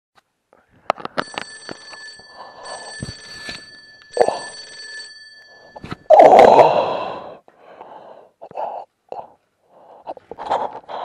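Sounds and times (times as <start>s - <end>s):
ringing bell-like tones: 1.2s - 6.6s.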